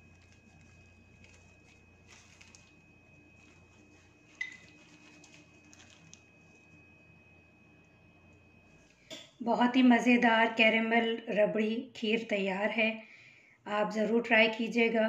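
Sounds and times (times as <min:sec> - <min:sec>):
chopped nuts sprinkled into a bowl: 0:00.1 - 0:02.8, 0:03.4 - 0:06.3.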